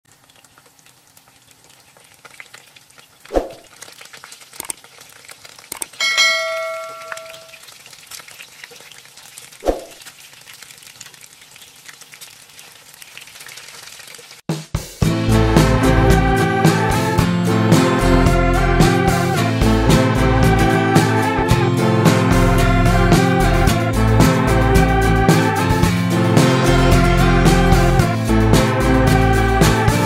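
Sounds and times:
spring rolls sizzling in oil: 0.1 - 5.8, 7.6 - 14.5
bell-like ding: 6.0 - 7.6
metal tongs knocking on pan: 6.0 - 7.6.

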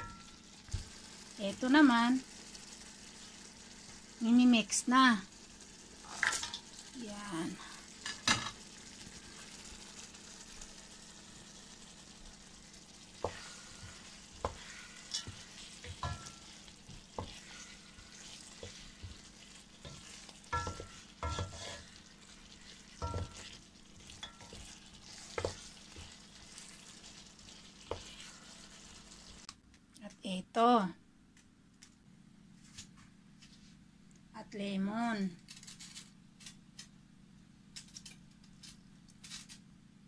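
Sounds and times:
frying sizzle: 0.0 - 29.5
spatula scraping curry in a pan: 13.1 - 29.4
spatula knocking against pan: 19.9 - 21.7, 23.0 - 23.5.

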